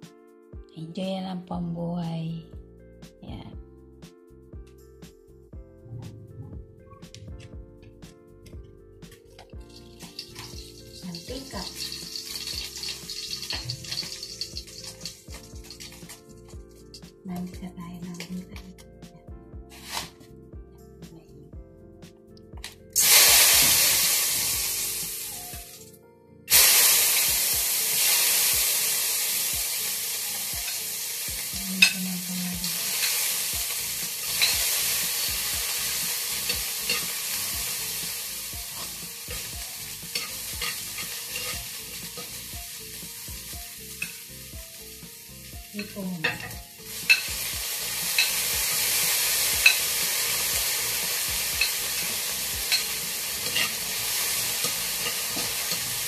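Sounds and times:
food sizzling in hot oil: 9.6s - 17.1s, 23.0s - 25.8s, 26.5s - 56.0s
spoon clicking against pan: 34.4s - 34.6s, 36.5s - 37.1s, 40.1s - 41.6s, 52.7s - 53.8s.

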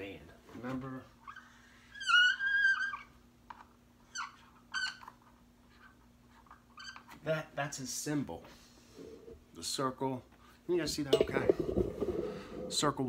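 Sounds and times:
marker squeaking on whiteboard: 1.2s - 7.2s.

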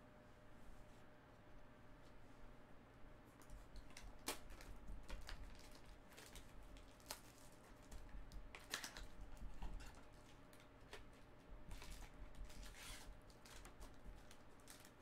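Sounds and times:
plastic wrap crinkling: 3.8s - 15.0s.

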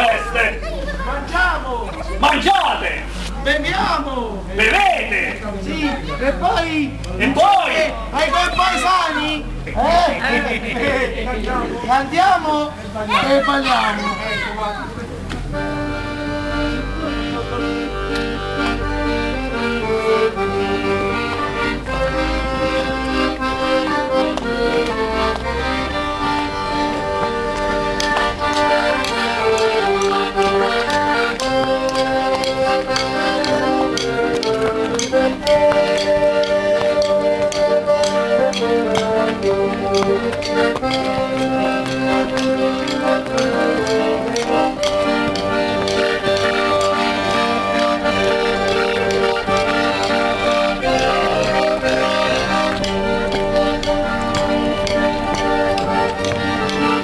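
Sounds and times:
piano accordion folk tune: 15.1s - 57.0s.

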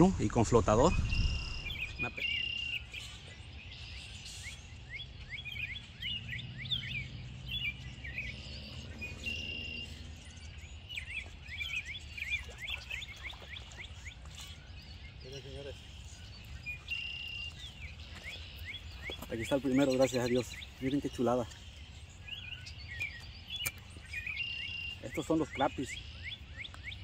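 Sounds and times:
low background rumble: 0.0s - 2.2s
birds chirping: 0.0s - 27.0s
bird whistled notes: 0.8s - 3.2s.

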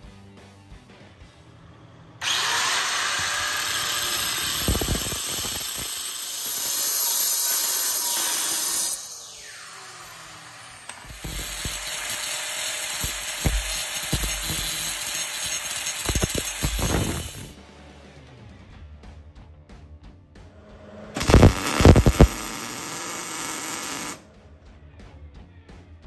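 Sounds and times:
angle grinder grinding metal: 2.2s - 17.6s, 20.9s - 24.2s
grinder disc spinning down: 2.2s - 17.6s, 21.0s - 24.2s.

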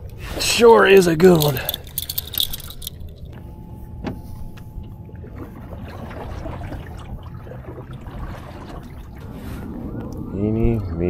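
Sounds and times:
low wind rumble: 0.0s - 11.0s
metal stringer clicking: 1.0s - 3.4s
paddle splashing water: 5.2s - 9.8s.

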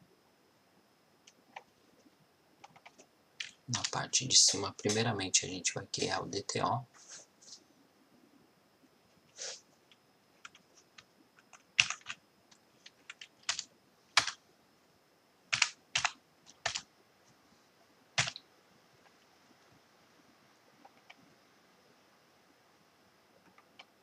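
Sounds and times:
computer keyboard typing: 2.6s - 5.1s, 10.4s - 10.6s, 11.4s - 12.2s, 12.8s - 14.4s, 15.5s - 16.8s, 18.2s - 18.4s, 20.8s - 21.2s.

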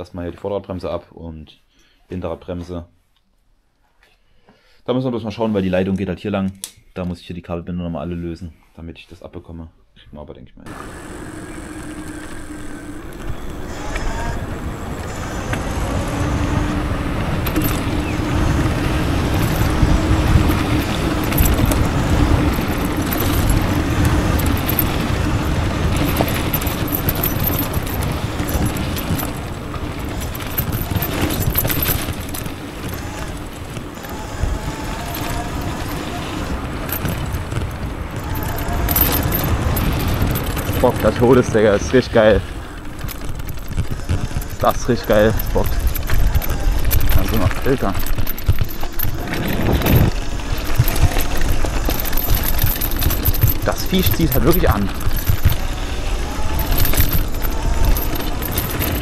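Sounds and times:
faint electric motor whine: 10.7s - 54.0s
tyres rolling over gravel: 10.7s - 59.0s
wind buffeting microphone: 10.7s - 59.0s.

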